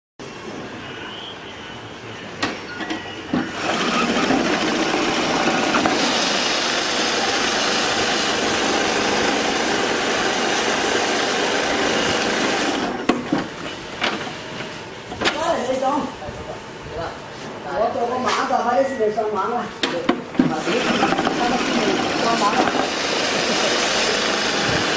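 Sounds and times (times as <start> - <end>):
sewing machine whirring: 3.4 - 13.1, 20.5 - 24.9.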